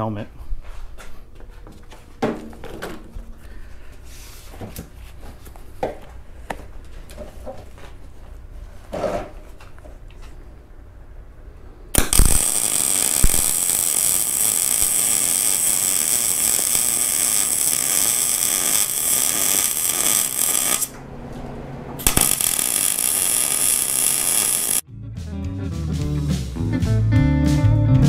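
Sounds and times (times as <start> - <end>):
arc welding on steel: 12.0 - 21.0, 22.0 - 24.8.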